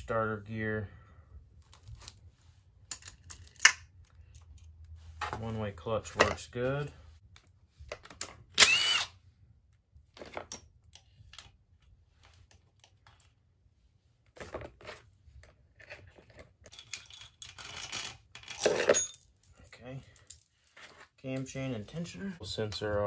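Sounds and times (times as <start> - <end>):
metal parts clinking: 2.9 - 4.4, 16.7 - 20.5.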